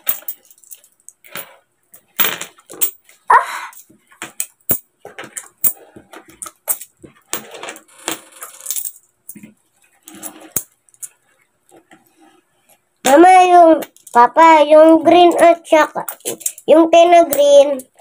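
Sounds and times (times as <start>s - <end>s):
coins sliding and scraping: 0.0s - 2.8s, 4.7s - 9.0s, 9.9s - 11.3s
metal coins clinking: 0.0s - 9.4s, 15.3s - 16.7s.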